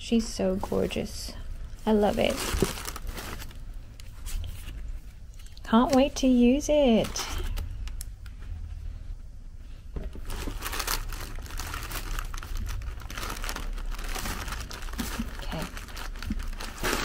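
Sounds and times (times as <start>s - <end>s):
packaging crinkling and rustling: 1.8s - 8.1s, 10.0s - 17.0s.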